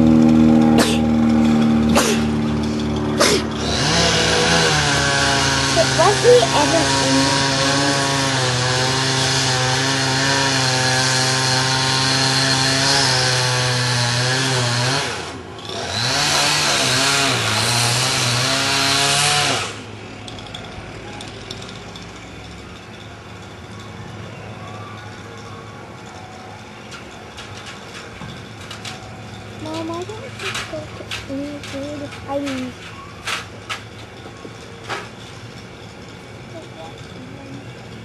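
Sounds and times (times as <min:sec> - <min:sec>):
chainsaw engine revving: 0:00.0 - 0:19.9.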